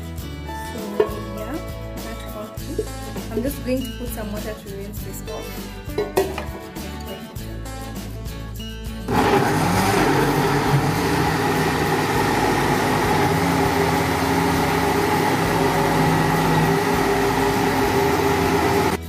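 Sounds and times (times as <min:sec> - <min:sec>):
blender motor running: 0:09.1 - 0:19.0.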